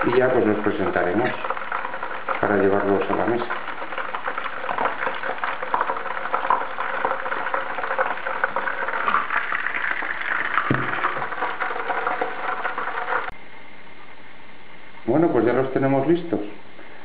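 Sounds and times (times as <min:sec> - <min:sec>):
oil sizzling in a frying pan: 0:01.3 - 0:13.3.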